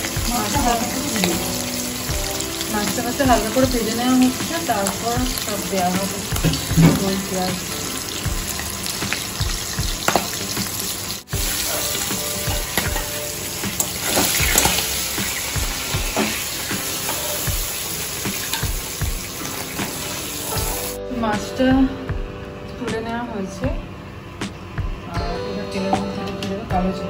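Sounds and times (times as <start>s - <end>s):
fish sizzling in hot oil: 0.0s - 21.0s.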